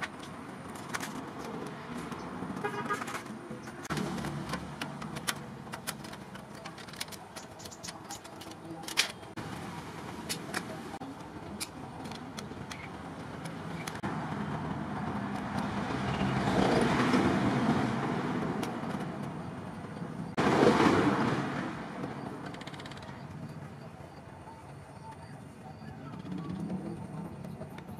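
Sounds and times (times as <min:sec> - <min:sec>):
passing vehicle: 0:08.7 - 0:27.9.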